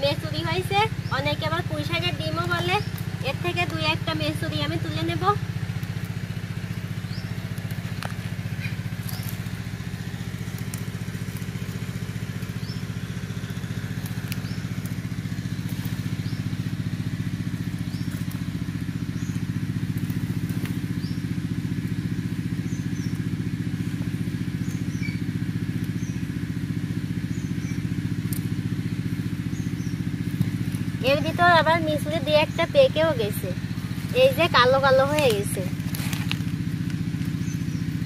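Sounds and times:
engine droning: 0:00.0 - 0:38.0.

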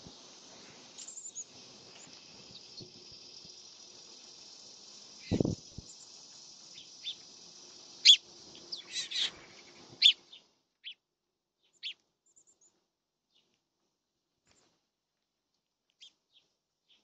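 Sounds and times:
steady high hiss: 0:00.0 - 0:10.7
songbirds chirping: 0:00.0 - 0:13.6, 0:15.9 - 0:17.0.

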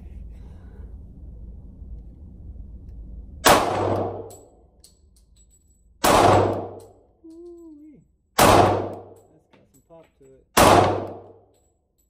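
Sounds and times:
pistol shots echoing indoors: 0:03.4 - 0:05.0, 0:06.0 - 0:07.0, 0:08.4 - 0:09.2, 0:10.6 - 0:11.6.

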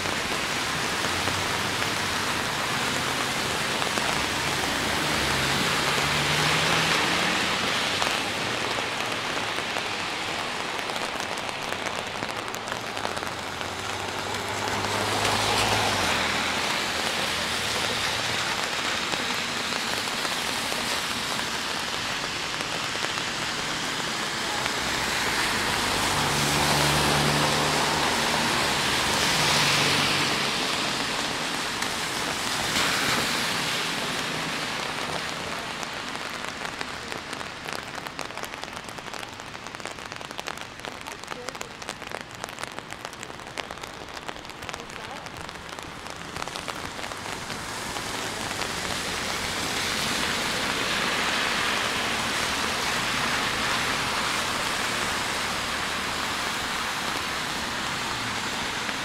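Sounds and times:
cars passing on wet road: 0:00.0 - 0:59.0
steady rain falling: 0:00.0 - 0:59.0.

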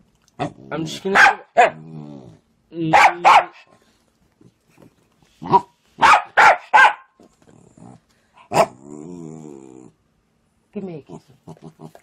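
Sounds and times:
dog barking: 0:01.1 - 0:01.8, 0:02.9 - 0:03.7, 0:05.4 - 0:07.2.

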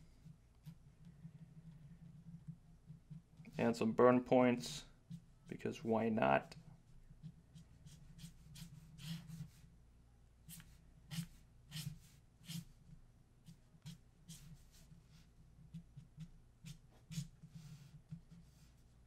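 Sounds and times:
marker scratching on paper: 0:07.2 - 0:09.7, 0:10.5 - 0:12.8, 0:13.4 - 0:18.9.

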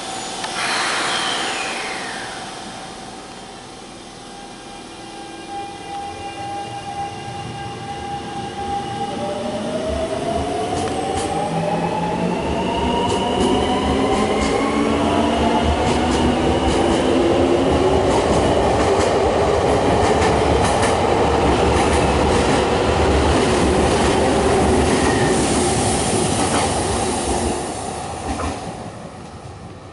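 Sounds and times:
electric train motor whine: 0:00.0 - 0:07.0
train wheel and rail noise: 0:00.0 - 0:29.9.

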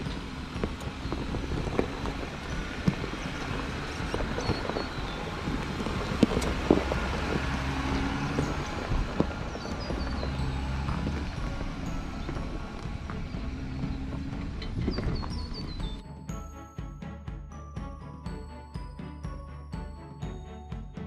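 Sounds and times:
stones knocking under tyres: 0:00.0 - 0:16.0
pickup engine running at low revs: 0:00.0 - 0:16.5.

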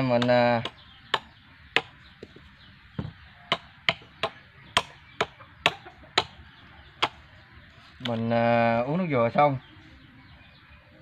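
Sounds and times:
machete chopping coconut husk: 0:00.0 - 0:01.9, 0:03.0 - 0:06.4.

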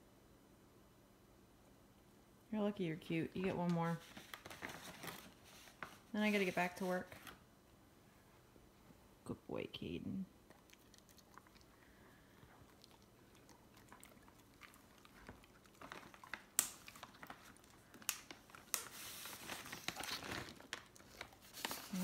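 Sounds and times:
dog crunching and chewing treat: 0:10.5 - 0:22.0.

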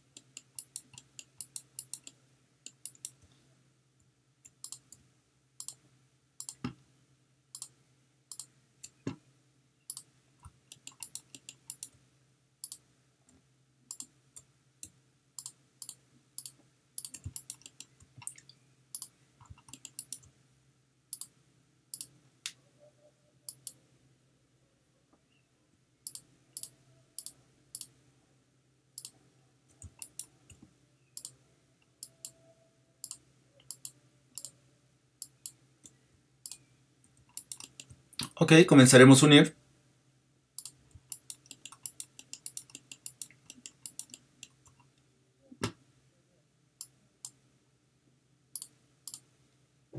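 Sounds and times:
faint low hum: 0:00.0 - 0:49.9
mouse and keyboard clicking: 0:00.2 - 0:03.2, 0:04.4 - 0:05.0, 0:05.6 - 0:05.8, 0:06.4 - 0:06.8, 0:09.9 - 0:12.0, 0:13.9 - 0:20.3, 0:23.5 - 0:23.8, 0:29.0 - 0:30.6, 0:31.2 - 0:32.4, 0:33.0 - 0:34.6, 0:35.2 - 0:38.4, 0:40.6 - 0:44.9, 0:48.6 - 0:49.3.

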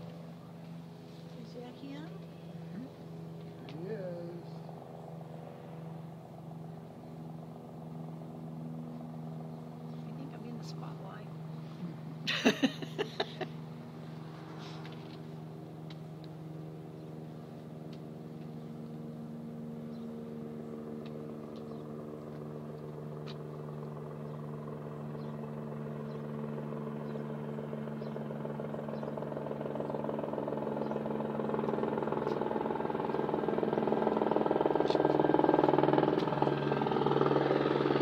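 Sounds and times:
helicopter rotor and engine drone: 0:00.0 - 0:38.0.

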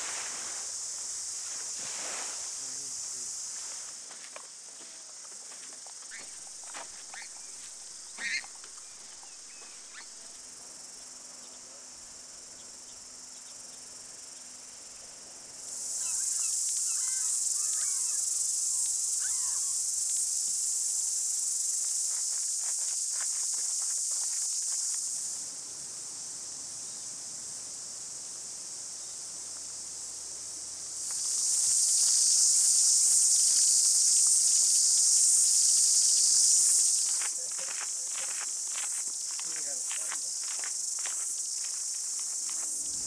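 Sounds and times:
cicadas buzzing: 0:00.0 - 0:43.0
short bird calls: 0:08.2 - 0:08.5, 0:19.2 - 0:19.8.

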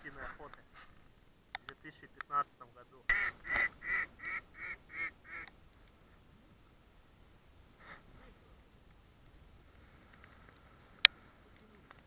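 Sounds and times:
mallard duck quacking: 0:03.1 - 0:05.5.

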